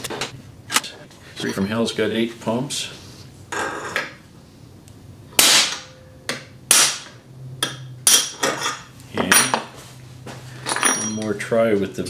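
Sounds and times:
hammer striking metal punch: 0:05.4 - 0:08.6.

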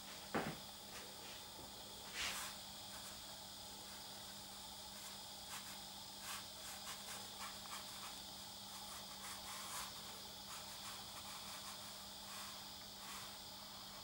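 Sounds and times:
steady high hiss: 0:00.0 - 0:14.0
brush strokes on paper: 0:02.1 - 0:03.2, 0:04.9 - 0:14.0.

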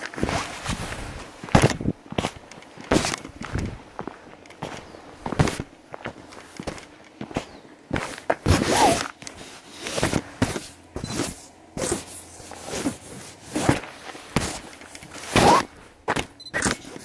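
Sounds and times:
footsteps on gravel: 0:00.0 - 0:09.2.

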